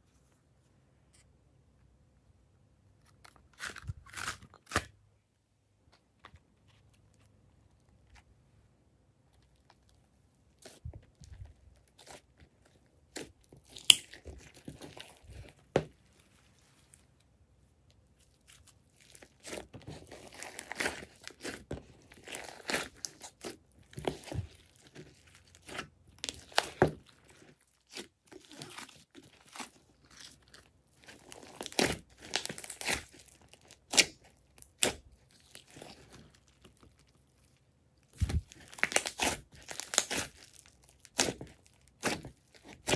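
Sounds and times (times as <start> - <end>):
slime crackling and popping: 10.5 - 15.8, 18.2 - 42.9.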